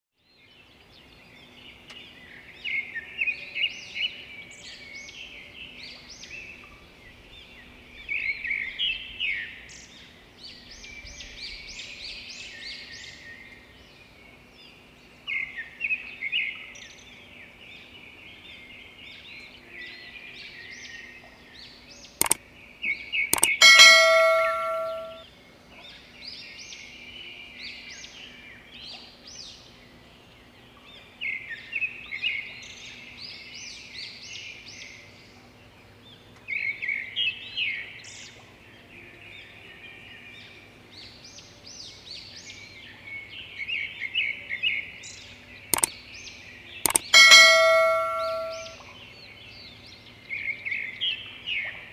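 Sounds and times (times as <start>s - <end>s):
bell-like ding: 23.4s - 25.2s, 46.9s - 48.8s
click: 23.4s - 25.2s, 46.9s - 48.7s.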